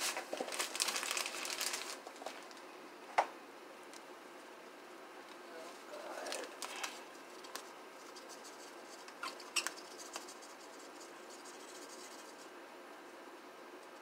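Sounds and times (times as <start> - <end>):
powder bag rustling: 0.0 - 2.6, 5.7 - 7.7.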